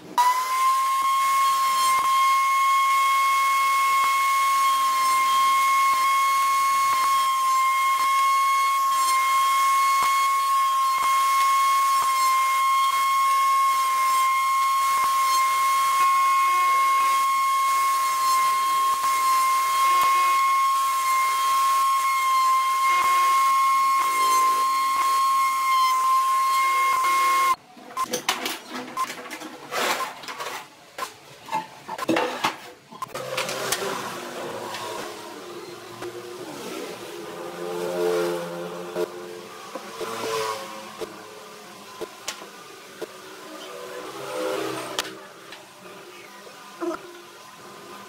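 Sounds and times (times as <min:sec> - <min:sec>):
router motor whining: 0:00.2 - 0:27.6, 0:33.0 - 0:45.8.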